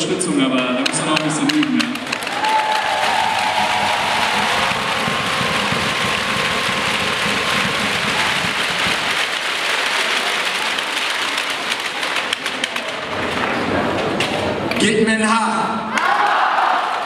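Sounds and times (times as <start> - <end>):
crowd applauding: 0.9 - 13.8.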